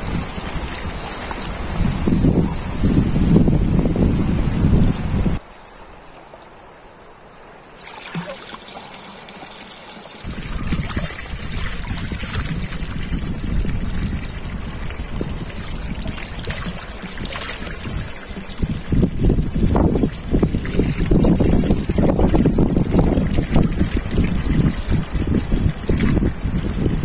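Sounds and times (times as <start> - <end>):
water trickling: 7.8 - 27.0.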